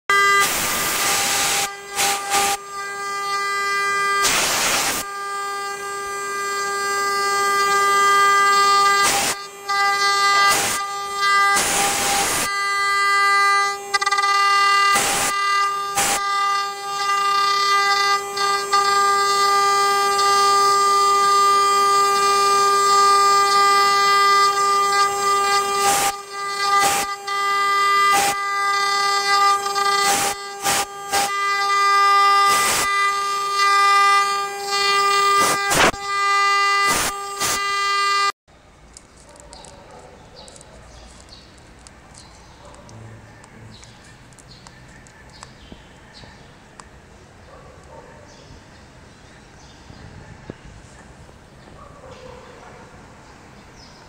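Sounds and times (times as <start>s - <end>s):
bit cutting wood: 0.1s - 38.4s
router spindle whining: 0.1s - 47.0s
short clicks: 38.9s - 45.8s.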